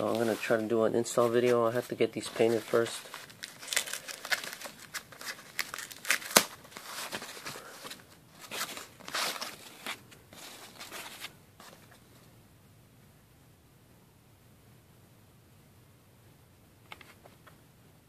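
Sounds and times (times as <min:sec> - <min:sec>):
plastic wrapping crinkling: 0:02.2 - 0:11.3.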